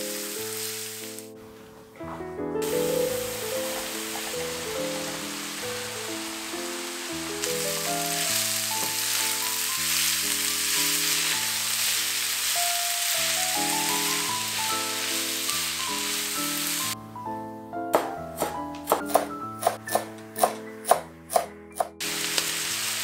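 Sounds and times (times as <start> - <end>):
cabbage sizzling in a pan: 0.0 - 1.7, 2.6 - 17.0, 22.0 - 23.0.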